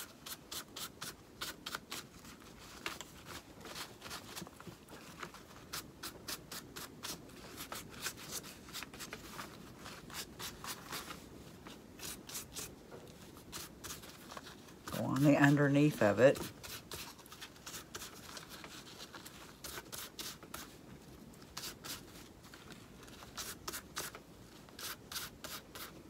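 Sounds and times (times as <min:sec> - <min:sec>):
brush scrubbing fabric: 0:00.0 - 0:20.8.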